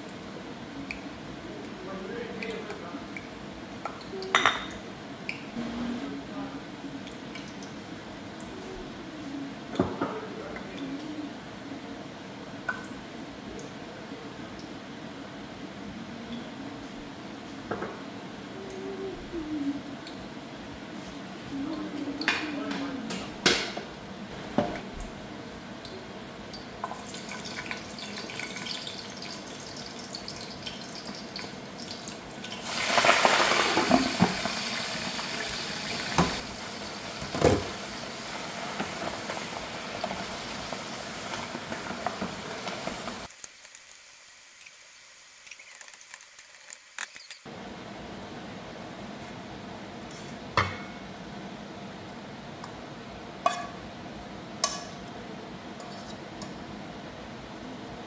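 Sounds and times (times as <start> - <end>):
greens sizzling in a frying pan: 26.6 - 47.5.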